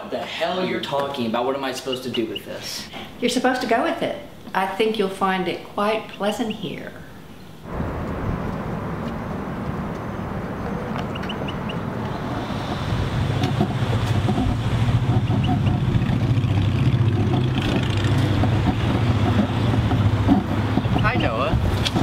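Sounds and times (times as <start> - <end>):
car traffic: 0.0 - 22.0
wind buffeting microphone: 7.2 - 22.0.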